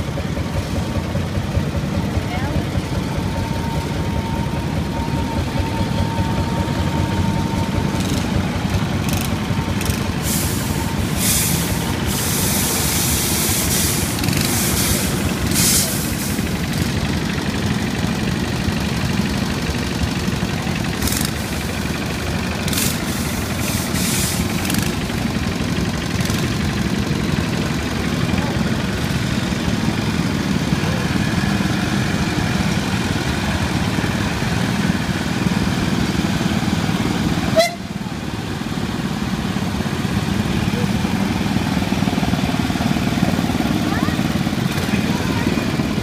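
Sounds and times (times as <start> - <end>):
small tractor engines running: 0.0 - 46.0
bursts of hiss: 10.2 - 16.5.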